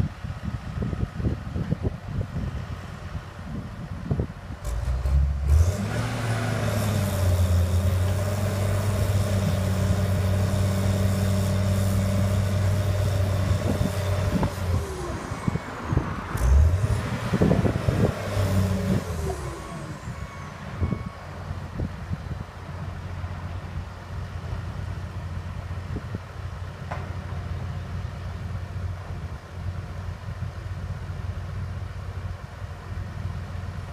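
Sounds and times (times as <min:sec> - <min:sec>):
diesel engine revving under load: 0:04.5 - 0:30.1.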